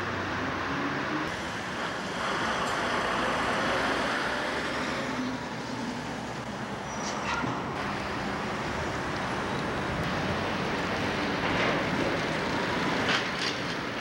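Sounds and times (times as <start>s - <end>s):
passing cars: 0.0s - 14.0s.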